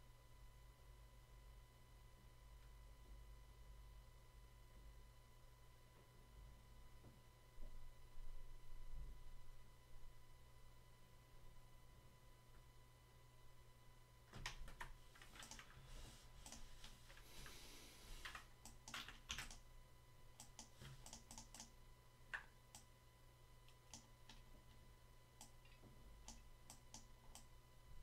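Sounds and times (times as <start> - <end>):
low electrical hum: 0.0 - 28.0
keyboard and mouse clicks: 14.3 - 15.8, 16.4 - 17.6, 18.2 - 19.6, 20.4 - 21.7, 23.7 - 24.5, 25.4 - 27.5.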